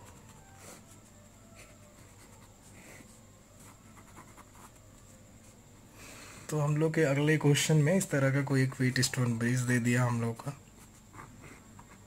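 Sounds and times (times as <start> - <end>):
pen scratching on paper: 1.6 - 4.8.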